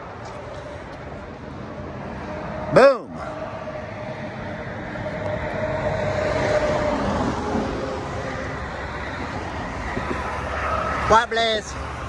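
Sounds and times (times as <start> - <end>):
road traffic passing at speed: 0.0 - 12.0.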